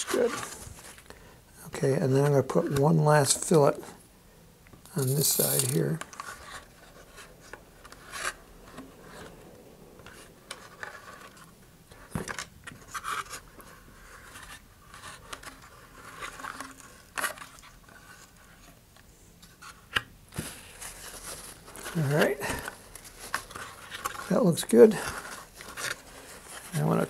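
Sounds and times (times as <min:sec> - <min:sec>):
light scrapes and rubs: 0:04.9 - 0:09.4.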